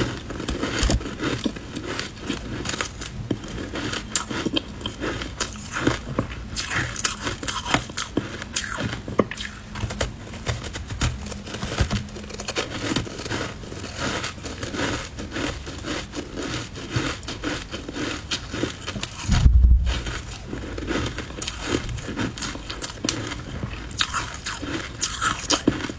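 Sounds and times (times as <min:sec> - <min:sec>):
ice being crunched and chewed: 0:00.0 - 0:25.9.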